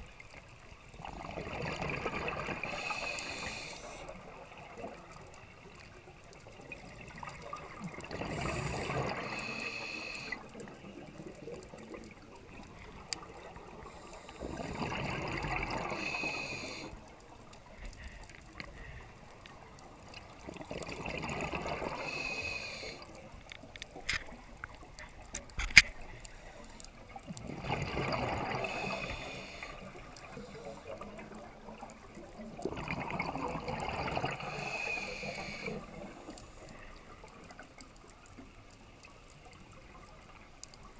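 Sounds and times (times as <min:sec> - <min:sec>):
underwater regulator bubbles: 0:01.0 - 0:05.3, 0:06.4 - 0:17.0, 0:20.2 - 0:23.3, 0:27.2 - 0:37.4
bubbly hiss: 0:01.0 - 0:05.6, 0:06.6 - 0:17.1, 0:20.6 - 0:23.3, 0:26.0 - 0:37.2.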